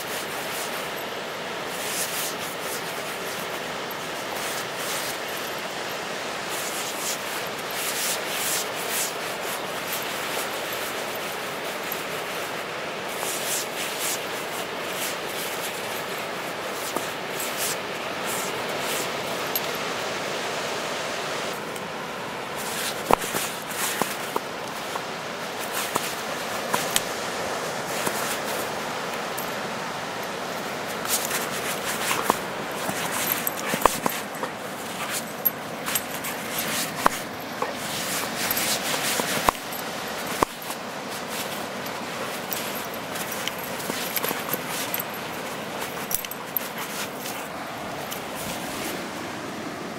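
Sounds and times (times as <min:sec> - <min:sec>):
dog digging in sand: 0:00.0 - 0:20.2, 0:21.5 - 0:49.3
steady background rush: 0:22.5 - 0:48.8.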